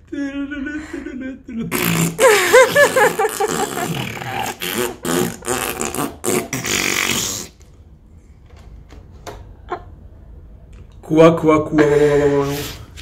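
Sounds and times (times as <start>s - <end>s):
breathy mouth noises: 3.3s - 7.8s.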